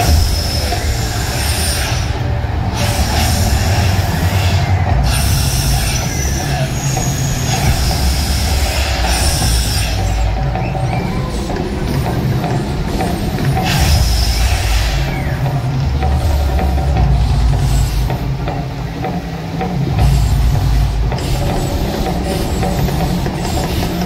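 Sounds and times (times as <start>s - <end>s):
low rumble: 0.0s - 18.7s
gas flame jets hissing: 0.0s - 24.0s.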